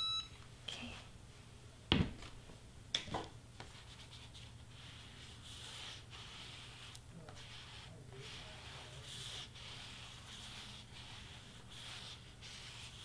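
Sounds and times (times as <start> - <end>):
hands rubbing paper sheets: 3.6 - 13.0.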